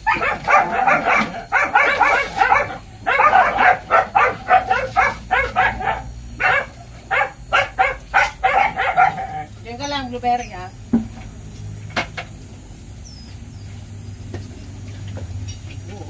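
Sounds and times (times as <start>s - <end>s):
dog yipping and barking: 0.0s - 9.5s.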